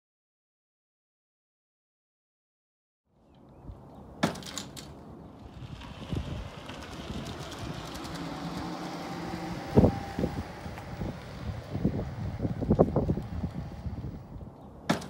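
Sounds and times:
golf cart driving past: 0:04.8 - 0:14.9.

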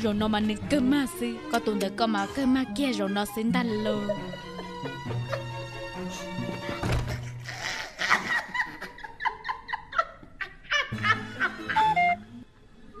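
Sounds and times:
background music: 0:00.0 - 0:09.5, 0:10.8 - 0:13.0
woman laughing: 0:03.9 - 0:04.6, 0:07.4 - 0:12.1.

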